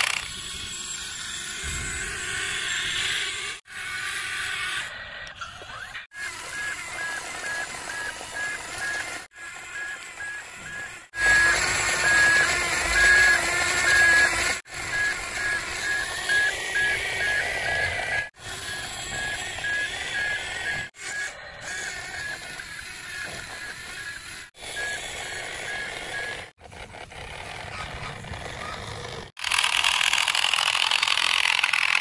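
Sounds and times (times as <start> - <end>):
buzzing electronic engine tone: 6.2 - 26.5.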